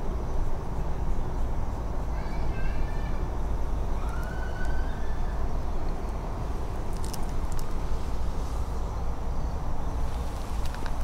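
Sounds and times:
low rumbling noise: 0.0s - 11.0s
brief clicks and crackles: 6.9s - 7.8s, 10.6s - 11.0s.

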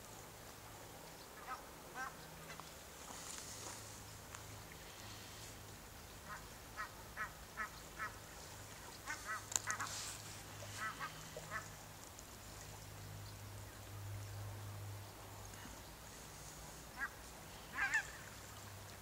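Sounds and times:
low steady hum: 0.0s - 19.0s
waterfowl honking: 1.4s - 2.2s, 6.2s - 8.2s, 9.0s - 11.7s, 16.9s - 18.3s.

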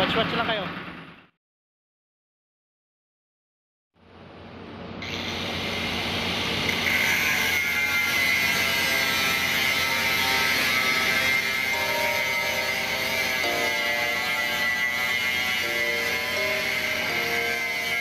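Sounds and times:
angle grinder cutting steel: 5.0s - 18.0s.

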